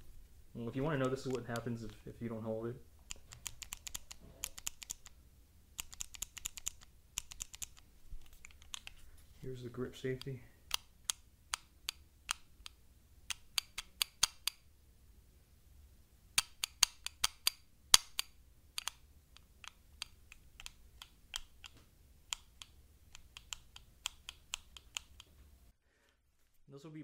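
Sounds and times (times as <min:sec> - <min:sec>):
pistol grip safety clicks: 0:16.4 - 0:25.3.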